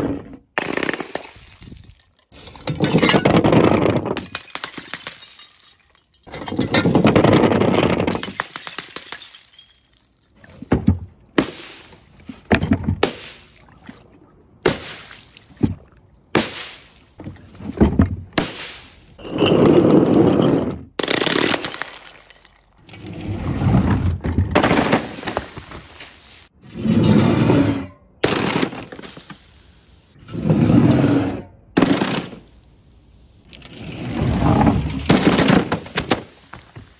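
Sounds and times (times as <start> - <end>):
glass bottles shattering: 1.0 - 7.4, 8.0 - 10.5, 21.1 - 22.8.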